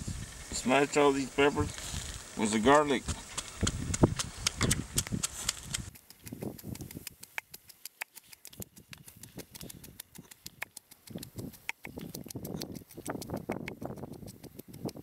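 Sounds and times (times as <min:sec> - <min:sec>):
pestle pounding in mortar: 0:03.0 - 0:14.4
wood clicking on clay: 0:03.1 - 0:15.0.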